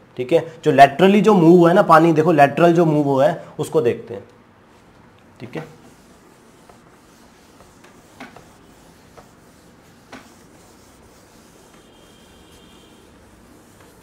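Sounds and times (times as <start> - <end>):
eraser rubbing on whiteboard: 5.6 - 14.0.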